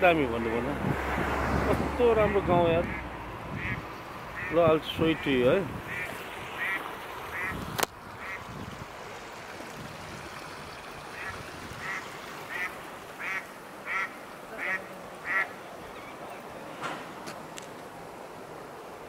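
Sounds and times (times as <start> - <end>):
duck quacking: 2.2 - 3.0, 3.6 - 3.8, 4.4 - 4.6, 5.9 - 7.6, 11.2 - 15.6.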